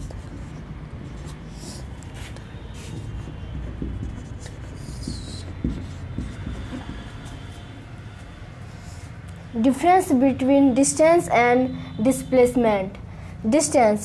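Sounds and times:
marker scratching on whiteboard: 0.0s - 10.0s
marker squeak: 4.0s - 7.7s.

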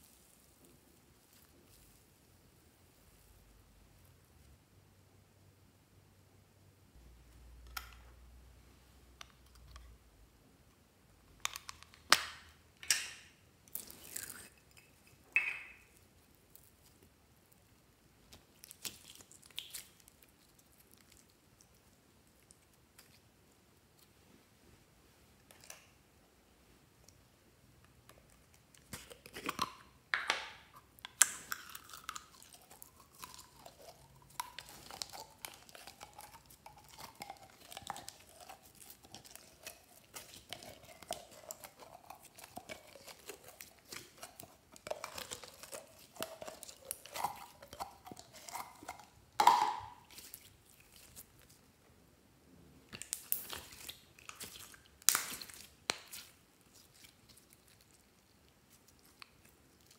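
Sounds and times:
slime squelching and crackling: 0.0s - 3.4s, 13.6s - 15.2s, 15.9s - 24.2s, 27.9s - 51.7s, 52.9s - 59.9s.

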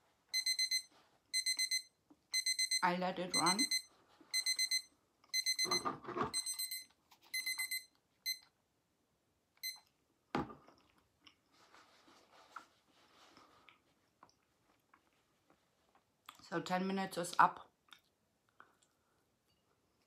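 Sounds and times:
timer alarm beeping: 0.3s - 8.4s.

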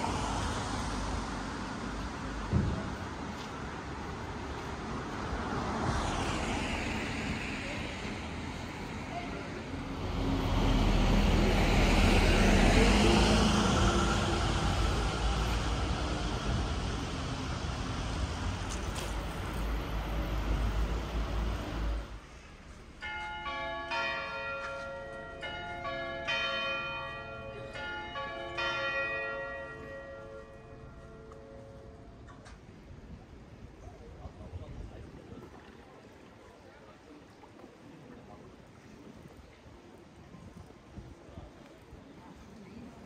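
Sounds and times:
traffic going by: 0.0s - 23.0s
church bells ringing: 23.0s - 32.2s.

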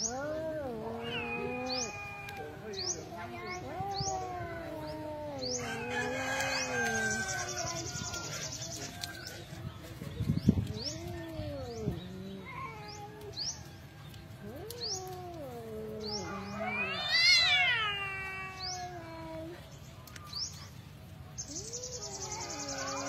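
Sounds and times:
cats yowling: 0.0s - 8.5s, 10.6s - 13.7s, 14.3s - 19.6s, 21.6s - 23.0s.

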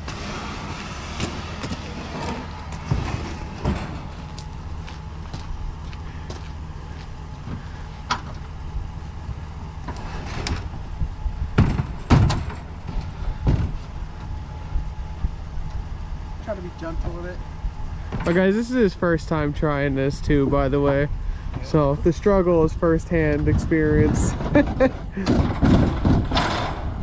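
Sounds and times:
steady low rumble: 0.0s - 27.0s
thumps: 11.5s - 13.9s, 23.5s - 27.0s.

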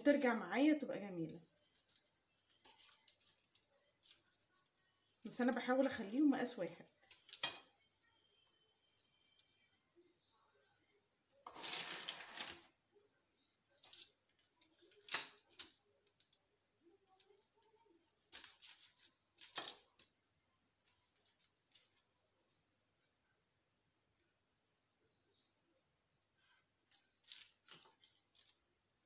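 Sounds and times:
paper rustling: 1.4s - 6.1s, 11.5s - 12.7s, 17.1s - 20.2s, 20.8s - 22.3s, 26.9s - 28.6s.

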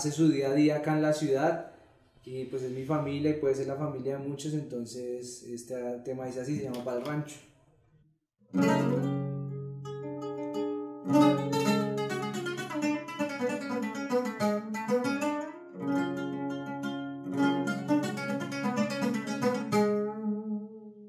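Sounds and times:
strummed chords on bandola: 8.5s - 21.0s.

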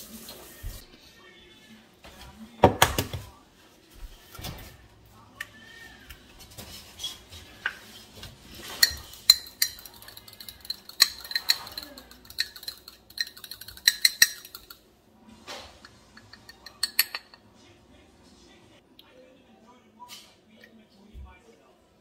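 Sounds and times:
fork clinking against ceramic bowl: 8.6s - 14.8s, 15.8s - 17.4s.

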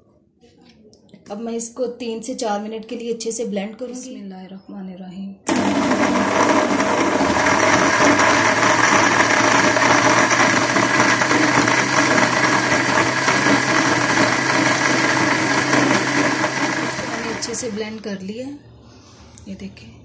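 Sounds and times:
blender motor whirring: 5.5s - 17.8s.

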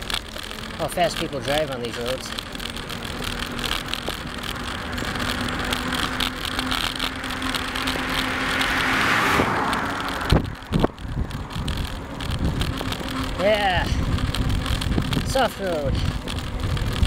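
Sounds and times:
sharp thumps: 0.0s - 17.0s
wind and riding noise: 0.0s - 17.0s
car passing: 2.1s - 15.1s.

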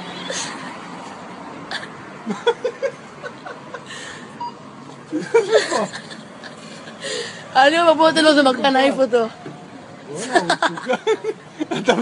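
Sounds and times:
man laughing softly: 5.1s - 7.0s.

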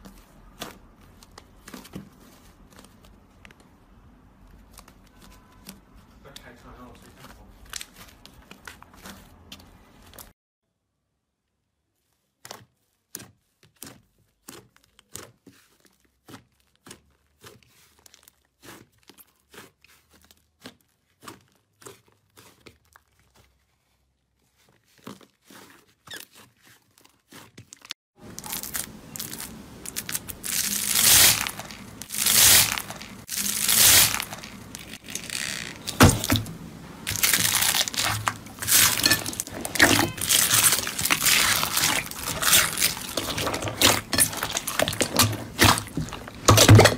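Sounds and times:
slime crackling and squishing: 0.0s - 10.3s, 12.0s - 46.9s
sticky slime popping: 37.1s - 46.9s.

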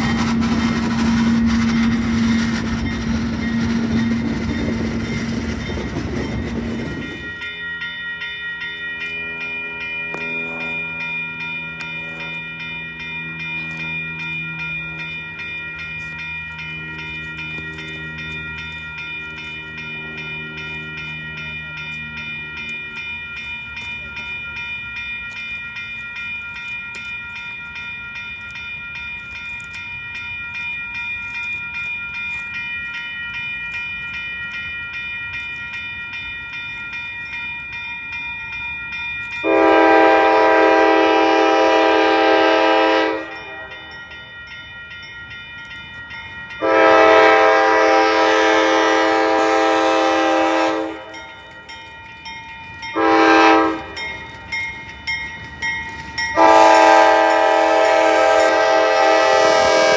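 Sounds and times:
bell ringing: 0.0s - 59.9s
diesel locomotive engine rumble: 0.0s - 59.9s
locomotive air horn blast: 39.4s - 43.7s, 46.6s - 51.1s, 53.0s - 53.9s, 56.4s - 59.9s.

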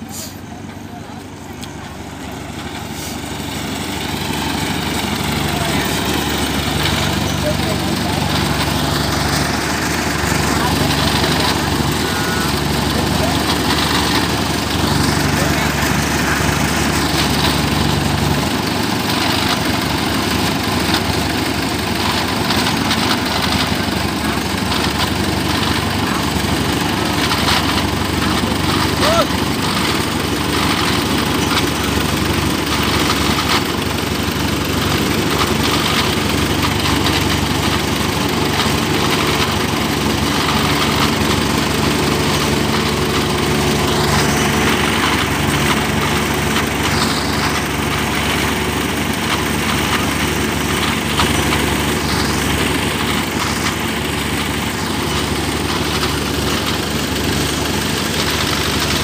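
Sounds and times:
combine harvester engine running: 0.0s - 59.0s.

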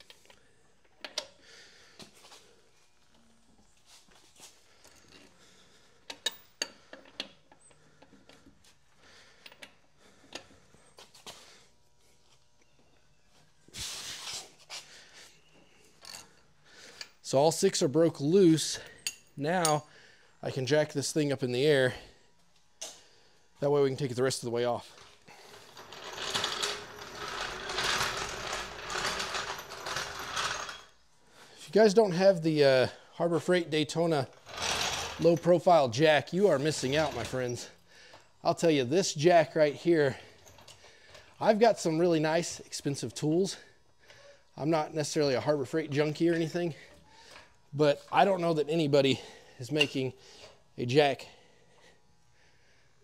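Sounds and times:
floor jack rolling on concrete: 24.8s - 31.0s, 34.1s - 37.8s.

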